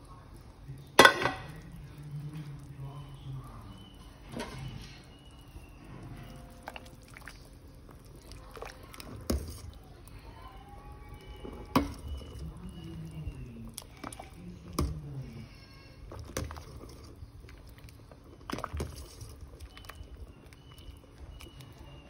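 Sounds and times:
metal ladle knocking on pot: 1.0 - 1.5.

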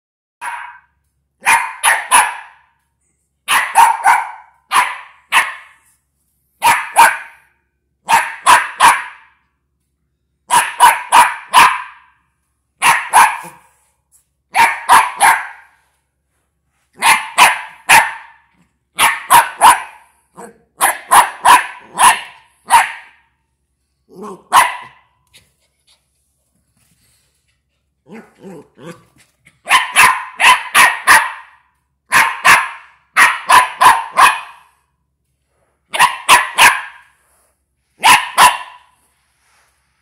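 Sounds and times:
puppy barking: 0.4 - 2.7, 3.4 - 5.9, 6.6 - 9.4, 10.5 - 12.2, 12.8 - 13.8, 14.5 - 15.8, 17.0 - 23.3, 24.2 - 25.1, 28.1 - 34.8, 35.9 - 37.2, 38.0 - 39.0.

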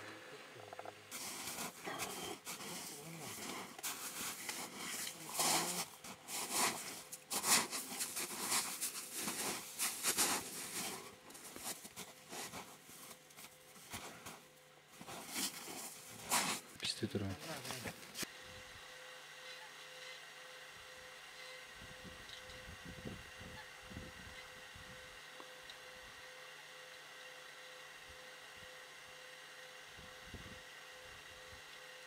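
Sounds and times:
rustling and crunching on snow: 1.1 - 18.3.

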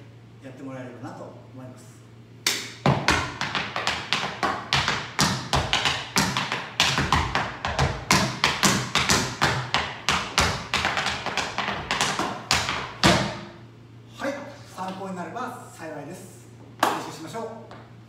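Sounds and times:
tap shoes on wooden floor: 2.8 - 13.4
heavy foot stamps: 2.8 - 13.6.

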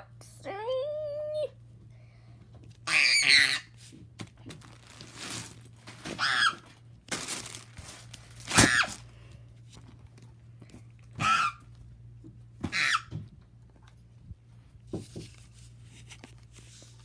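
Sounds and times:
child squealing and screaming: 2.9 - 3.7, 6.2 - 6.6, 11.2 - 11.6
rustling and handling noise: 3.7 - 12.6, 13.4 - 17.0.

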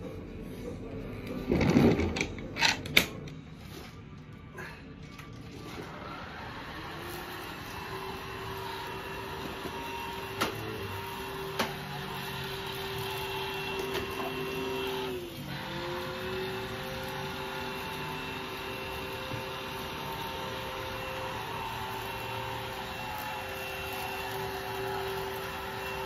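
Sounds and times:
cordless vacuum whining: 5.6 - 26.0.

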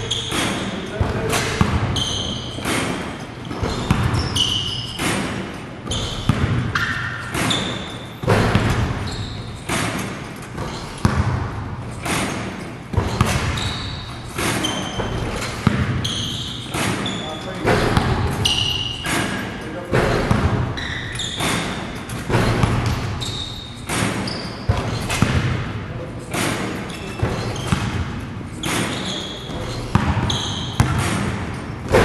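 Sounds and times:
basketballs bouncing on court: 0.0 - 32.0
sneakers squeaking on floor: 0.0 - 32.0.

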